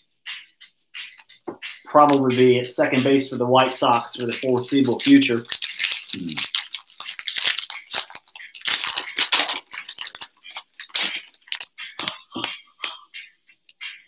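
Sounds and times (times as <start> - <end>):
foil pack tearing and crinkling: 3.9 - 12.2.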